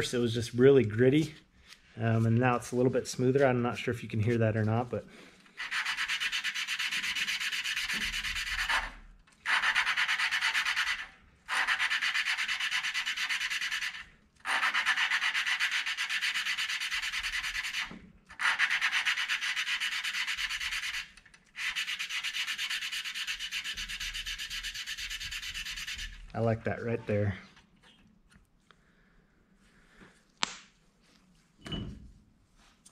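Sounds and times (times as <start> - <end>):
valve lapping gritty rasping rub: 9.5 - 26.4.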